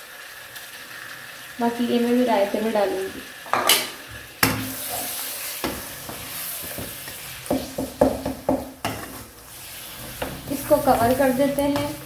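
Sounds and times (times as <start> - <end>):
food sizzling in wok: 0.0 - 12.0
wooden spatula knocking pan: 5.6 - 9.2.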